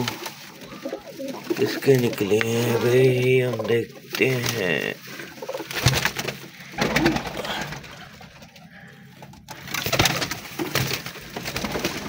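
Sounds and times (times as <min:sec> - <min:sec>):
pigeons cooing: 0:00.0 - 0:09.1
sharp knocks and rustles: 0:05.6 - 0:08.6.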